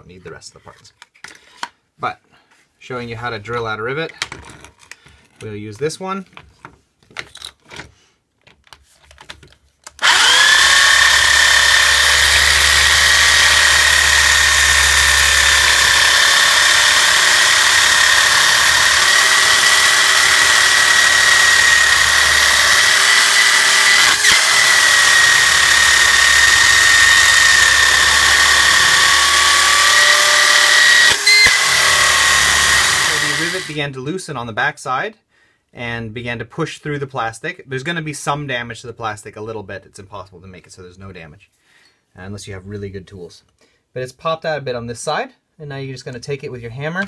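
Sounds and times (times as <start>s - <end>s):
electric drill whine: 10.0s - 33.8s.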